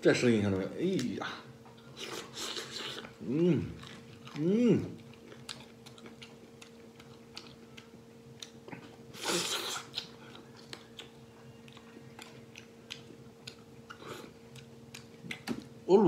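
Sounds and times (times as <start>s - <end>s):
wet chewing clicks and smacks: 3.8s - 15.8s.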